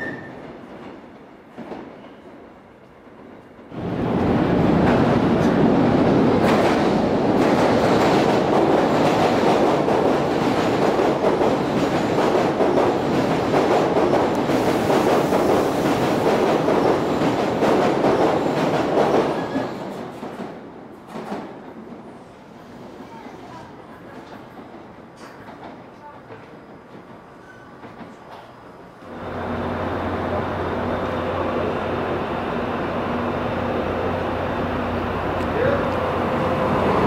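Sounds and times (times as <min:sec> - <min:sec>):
electric train passing: 0:28.6 - 0:37.0.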